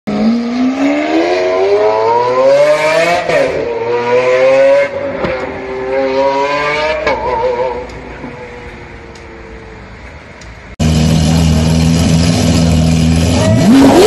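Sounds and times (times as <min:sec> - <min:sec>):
sports car engine accelerating: 0:10.8 - 0:14.0.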